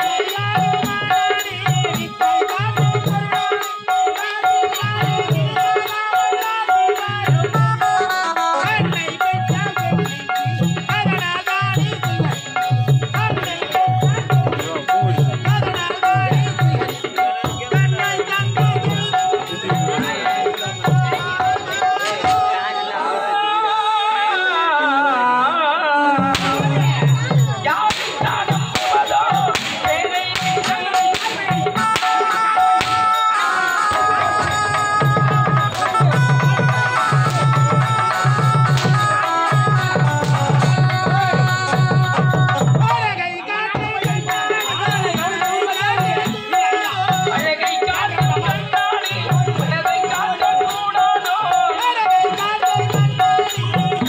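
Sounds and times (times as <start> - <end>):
drum beat: 0.0 - 22.8, 26.2 - 54.0
small jingling cymbals: 0.0 - 23.0, 26.3 - 54.0
hand drum beating: 26.2 - 43.1
wavering ornamented melody: 28.3 - 42.9.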